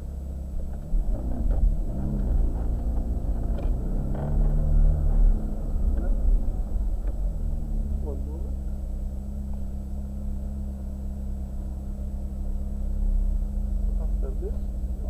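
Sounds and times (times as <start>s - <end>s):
car engine rumble: 0.0s - 15.0s.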